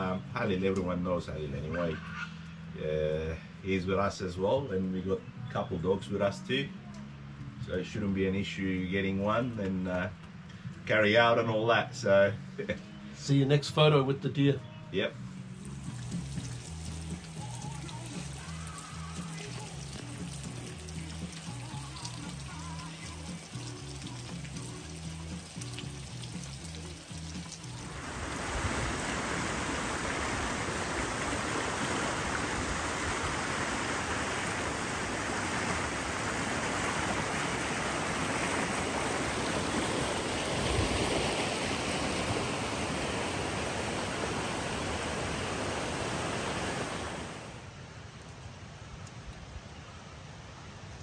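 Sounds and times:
soft music: 0.0 - 29.0
light rain: 15.4 - 51.0
creek water rushing over rocks: 15.6 - 47.7.

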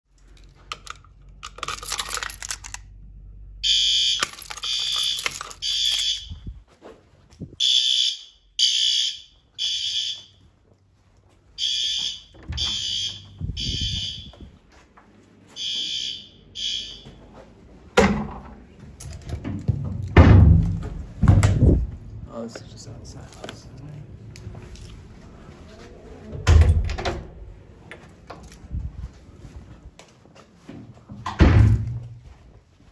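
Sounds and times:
fire alarm horn blasts: 3.6 - 6.4, 7.6 - 10.4, 11.6 - 14.5, 15.6 - 17.3.

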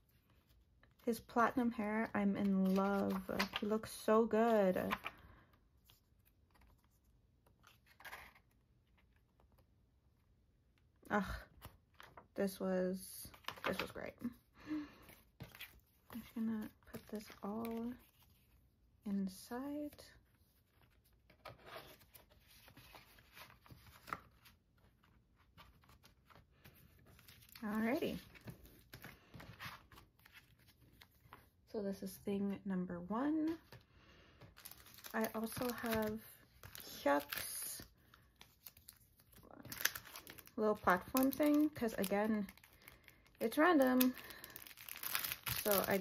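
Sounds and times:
cardboard and paper rustling: 0.0 - 9.7, 13.2 - 18.7, 19.3 - 31.6, 33.4 - 46.0
page turning: 2.3 - 4.0, 5.9 - 9.6, 20.5 - 31.5.

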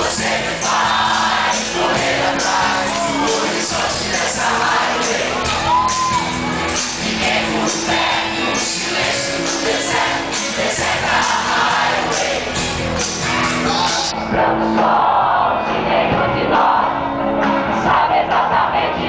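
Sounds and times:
man singing: 1.5 - 5.7.

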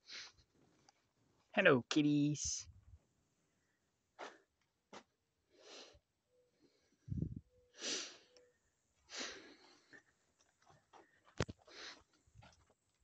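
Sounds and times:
short breaths or sniffs: 0.0 - 0.4, 5.5 - 6.0, 6.7 - 8.4, 9.0 - 10.0, 11.6 - 12.1.

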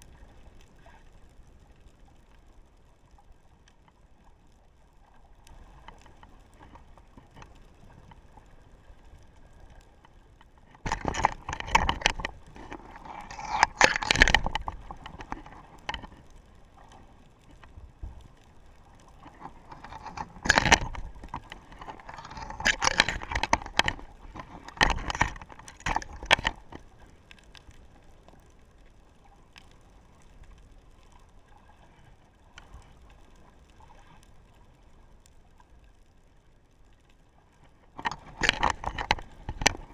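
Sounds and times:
low underwater hiss: 0.0 - 10.9
camera scraping on seabed: 0.0 - 36.1, 36.9 - 39.9.

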